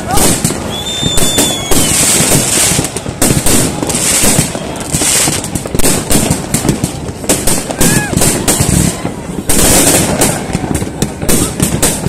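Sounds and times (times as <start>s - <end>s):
firecrackers crackling: 0.0s - 12.0s
fireworks bangs: 0.0s - 12.0s.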